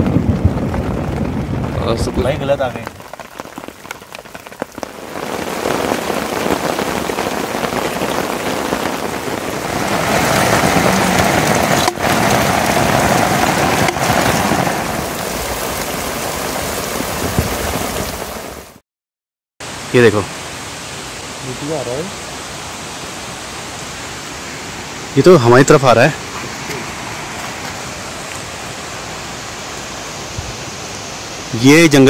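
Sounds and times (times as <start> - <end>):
heavy rain falling: 0.0 - 18.8, 19.6 - 32.0.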